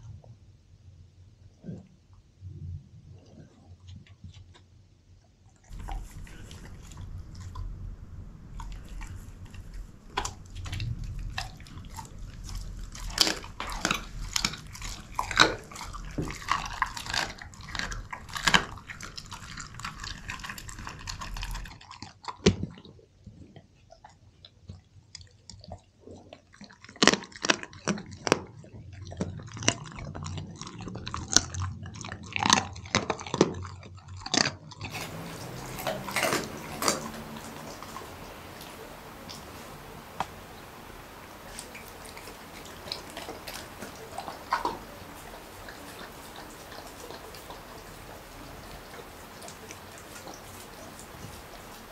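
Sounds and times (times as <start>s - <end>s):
dog chewing wet food: 5.6s - 51.9s
teeth clicking: 34.8s - 51.9s.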